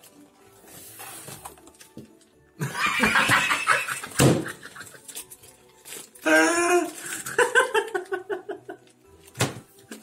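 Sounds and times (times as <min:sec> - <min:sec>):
man and woman laughing: 0:02.6 - 0:05.2, 0:06.9 - 0:08.9.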